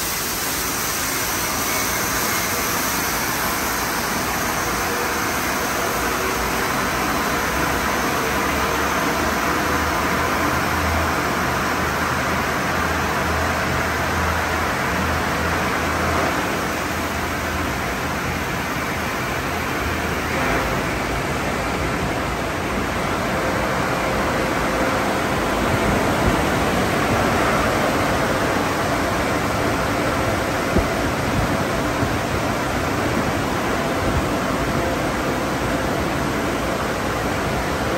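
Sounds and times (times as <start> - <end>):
water spraying onto car: 0.0 - 25.2.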